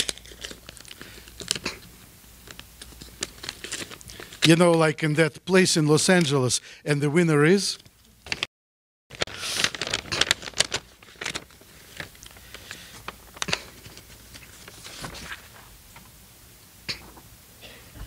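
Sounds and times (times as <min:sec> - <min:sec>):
paper envelope crackling and rustling: 0:00.0 - 0:01.8, 0:02.4 - 0:04.9, 0:09.1 - 0:15.7.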